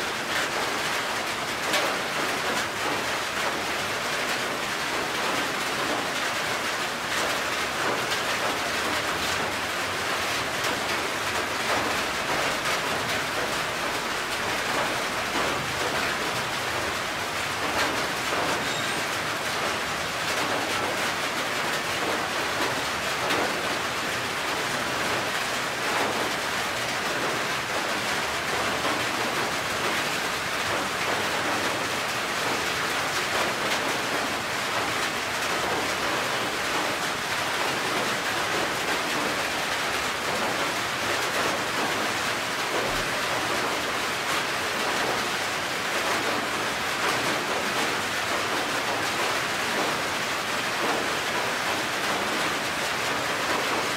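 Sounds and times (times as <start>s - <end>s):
rain on a metal roof: 0.0s - 53.9s.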